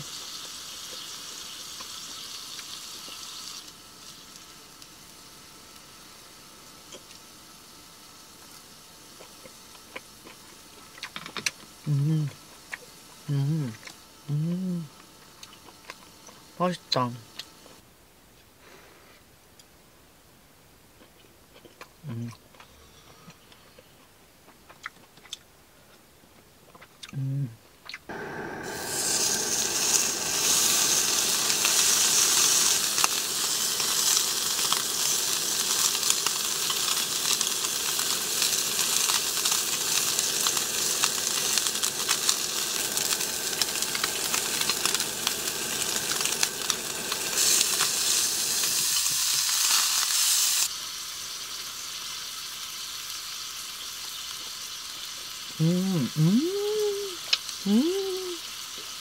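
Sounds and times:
beef sizzling in a skillet: 0:00.0 - 0:14.3, 0:28.1 - 0:59.0.

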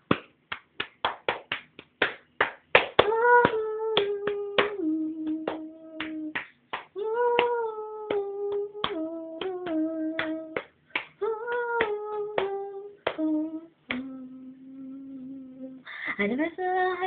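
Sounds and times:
hand claps: 0:00.0 - 0:13.3, 0:13.9 - 0:14.1
woman singing wordless notes: 0:03.0 - 0:17.0.

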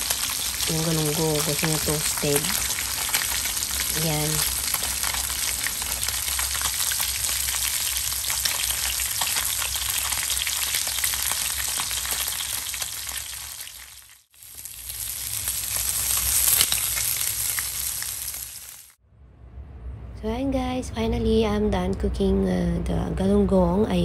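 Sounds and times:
fish sizzling in hot oil: 0:00.0 - 0:19.0.

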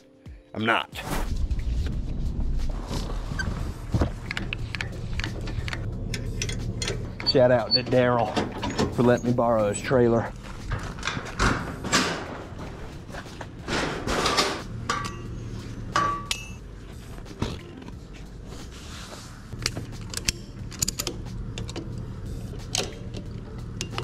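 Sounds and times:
metal gate clanking: 0:05.3 - 0:12.8, 0:13.6 - 0:16.6
ratchet strap clicks: 0:19.6 - 0:21.9.

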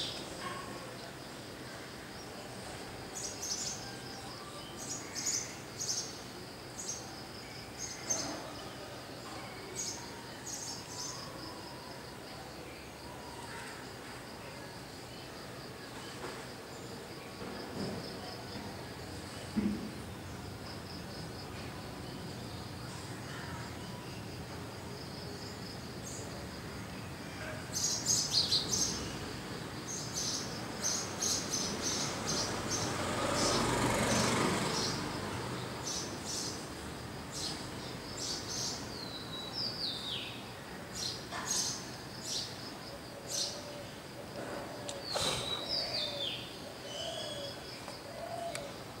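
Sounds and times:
small birds chirping: 0:27.4 - 0:48.9.

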